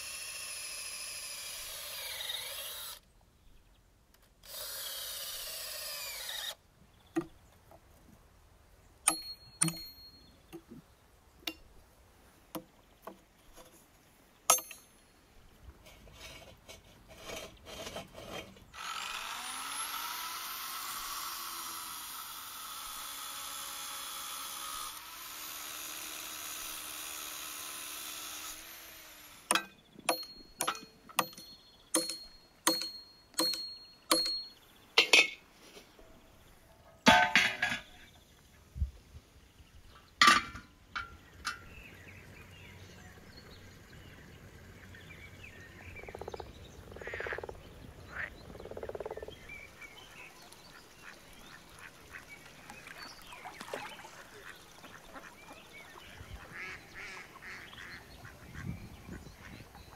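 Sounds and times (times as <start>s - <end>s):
electric power tool running: 0.0s - 3.0s, 4.4s - 6.6s, 18.8s - 29.5s
hammer striking steel rebar: 9.1s - 10.2s, 14.5s - 14.9s, 29.5s - 35.4s.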